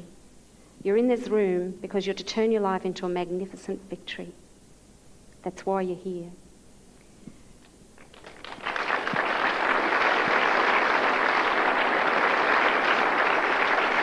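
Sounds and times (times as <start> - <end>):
crowd applauding: 8.0 - 14.0.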